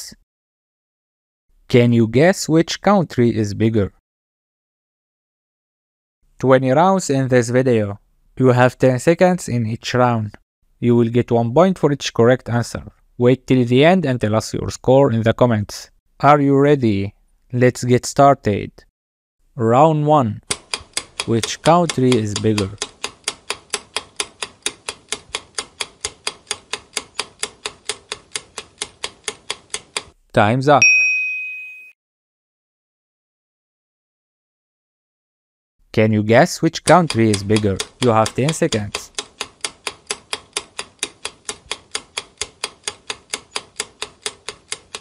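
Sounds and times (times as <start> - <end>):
clock ticking: 20.4 - 30.2, 36.8 - 45.0.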